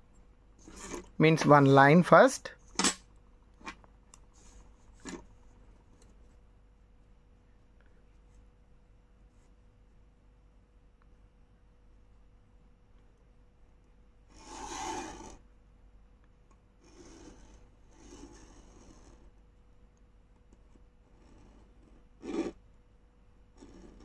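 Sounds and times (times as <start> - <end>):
pen scratching on paper: 14.3 - 15.4, 16.8 - 19.3, 21.1 - 22.6, 23.6 - 24.0.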